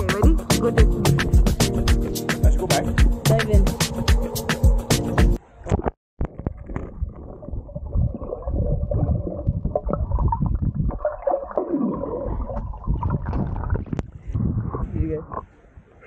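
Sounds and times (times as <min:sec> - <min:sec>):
muffled underwater rumble: 0:05.7 - 0:15.5
bubbling and gurgling: 0:06.2 - 0:15.4.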